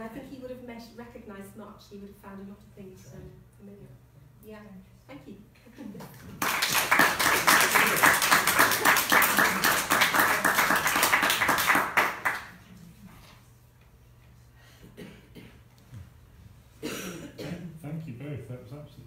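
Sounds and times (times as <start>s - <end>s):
audience applauding: 6.1s - 12.6s.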